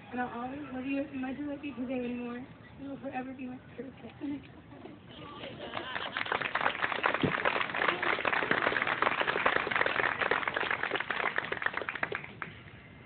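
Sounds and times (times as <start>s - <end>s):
crowd applauding: 5.2s - 12.8s.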